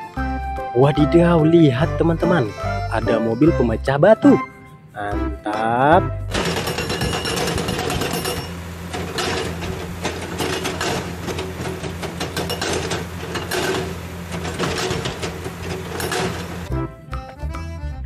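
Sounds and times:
diesel engine running: 0:05.0 - 0:18.0
hydraulic rock breaker hammering: 0:06.3 - 0:16.7.

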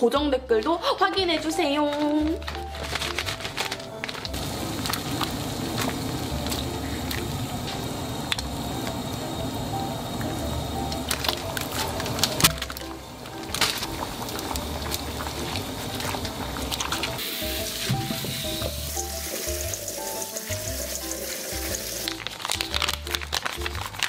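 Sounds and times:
sizzling hiss: 0:04.3 - 0:22.8.

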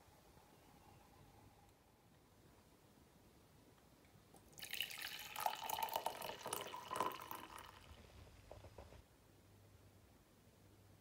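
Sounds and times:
water dripping: 0:04.4 - 0:08.0
water pouring into a mug: 0:04.5 - 0:08.1.

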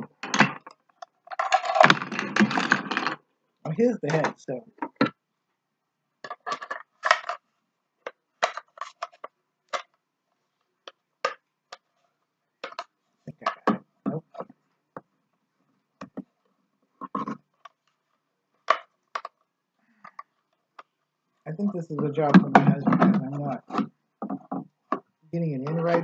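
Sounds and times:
hard plastic pieces knocking together: 0:00.0 - 0:03.2, 0:04.1 - 0:05.2, 0:06.2 - 0:07.4, 0:08.0 - 0:10.0, 0:12.6 - 0:15.1, 0:18.6 - 0:21.0.

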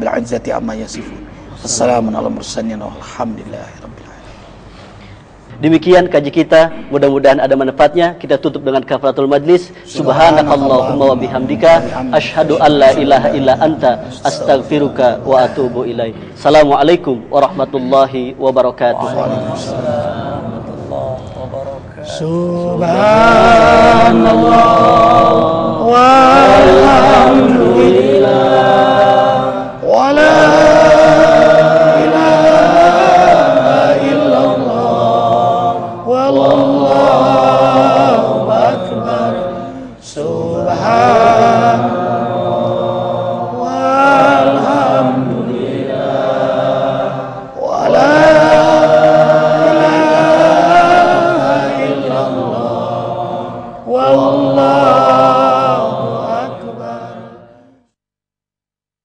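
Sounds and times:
group chanting in unison: 0:09.9 - 0:16.7, 0:18.9 - 0:57.9.

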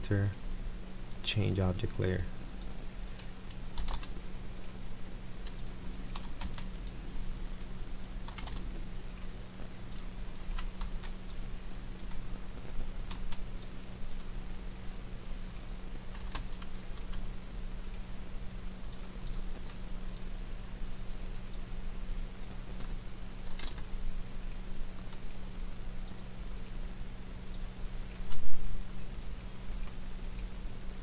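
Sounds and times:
steady low hum: 0:00.0 - 0:31.0
keyboard keystrokes: 0:03.7 - 0:04.2, 0:05.4 - 0:06.7, 0:08.3 - 0:08.6, 0:10.4 - 0:11.2, 0:16.1 - 0:17.2, 0:23.4 - 0:23.9.

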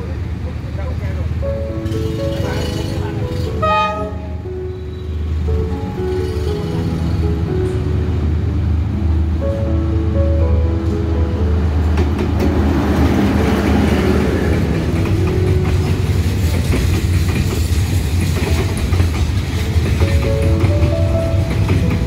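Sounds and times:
locomotive rumble: 0:00.0 - 0:22.0
train wheels clickety-clack: 0:11.9 - 0:22.0.

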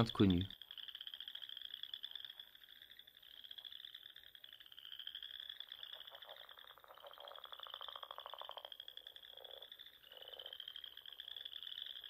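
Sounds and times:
frogs trilling: 0:00.0 - 0:12.0
lower pulsed frog trill: 0:00.0 - 0:12.0.

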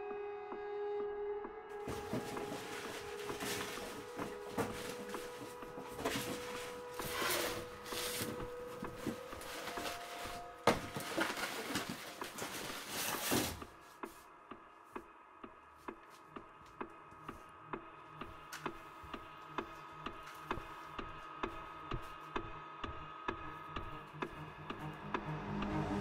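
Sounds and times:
rummaging through cardboard boxes: 0:01.8 - 0:13.8.

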